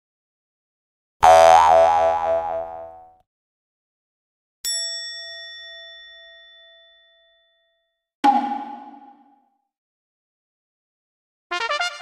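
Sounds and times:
comic boing with wobbling pitch: 0:01.2 - 0:03.0, 0:08.2 - 0:09.4.

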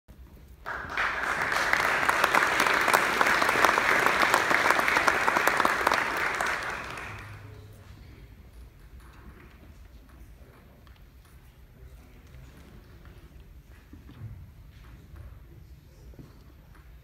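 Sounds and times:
audience applauding: 0:00.6 - 0:07.6.

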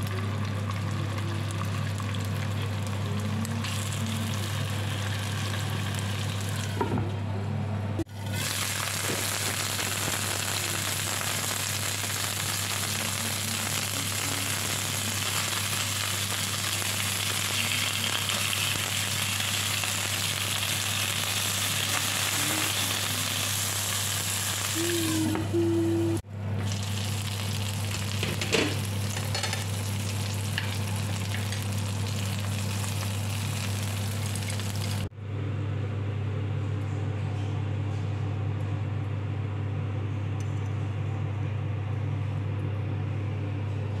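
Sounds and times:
chicken wings sizzling in oil: 0:00.0 - 0:06.8, 0:08.1 - 0:25.9, 0:26.6 - 0:35.1.

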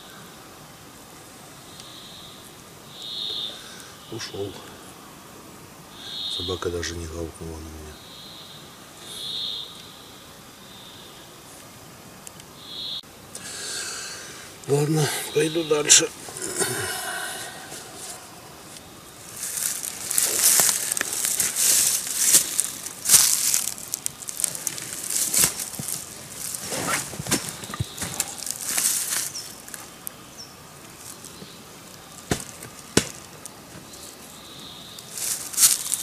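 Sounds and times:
rustling of brush and clothing: 0:13.4 - 0:36.0
footsteps in undergrowth: 0:16.0 - 0:36.0.

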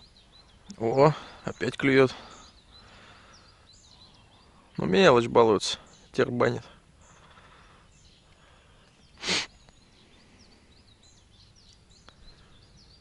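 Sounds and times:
small birds chirping: 0:00.0 - 0:13.0
short breathy hiss: 0:09.2 - 0:09.6.

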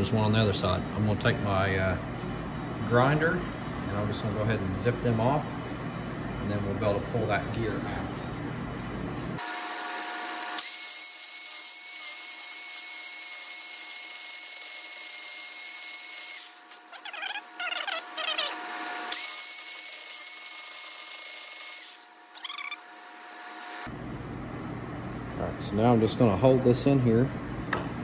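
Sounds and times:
angle grinder whining: 0:09.4 - 0:23.9
grinder cutting steel: 0:09.4 - 0:23.9.

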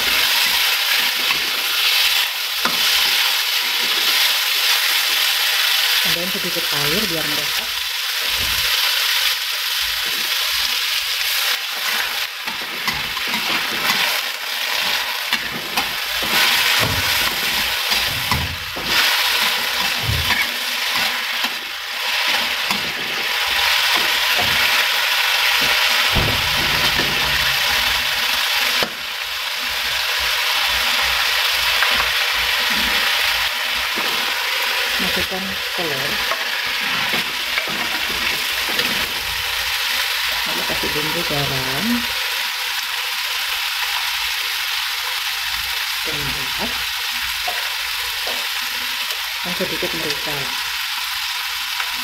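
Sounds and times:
vegetables sizzling in a wok: 0:00.0 - 0:52.0.

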